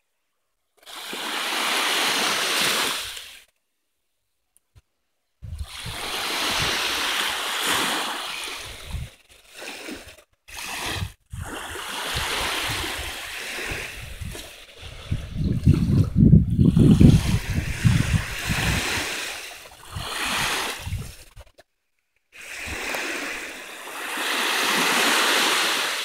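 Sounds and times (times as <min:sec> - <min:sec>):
small waves washing onto beach: 0:00.8 - 0:03.5, 0:05.5 - 0:21.6, 0:22.4 - 0:26.0
wind buffeting microphone: 0:05.4 - 0:07.2, 0:08.6 - 0:09.2, 0:10.9 - 0:21.5.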